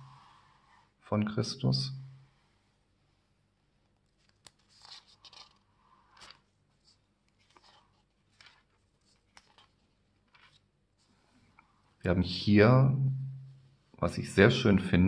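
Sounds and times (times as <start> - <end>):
book pages turning: 3.8 - 11.8.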